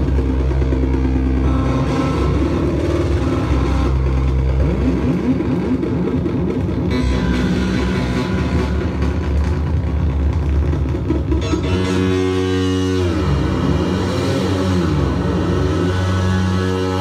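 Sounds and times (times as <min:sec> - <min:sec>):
rising synth pitch sweeps: 0:00.0 - 0:10.3
low electronic drone: 0:00.0 - 0:17.0.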